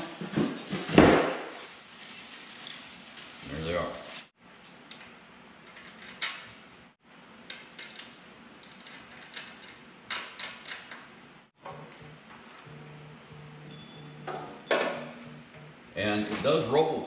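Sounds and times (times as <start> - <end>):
low hum: 11.6 - 16.3.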